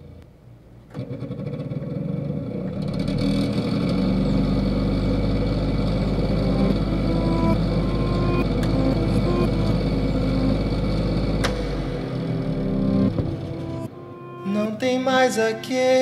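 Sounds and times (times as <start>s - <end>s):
low sustained drone with held tones: 3.8s - 16.0s.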